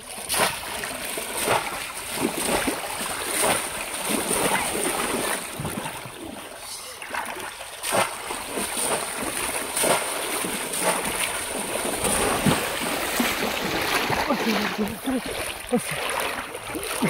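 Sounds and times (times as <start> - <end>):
sloshing from wading: 0.0 - 17.0
basket trap splashing in water: 7.1 - 17.0.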